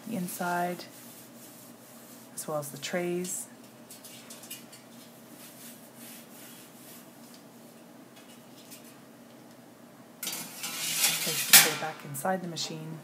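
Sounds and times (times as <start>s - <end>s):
cloth wiping metal tray: 0.0s - 2.9s, 5.1s - 7.2s.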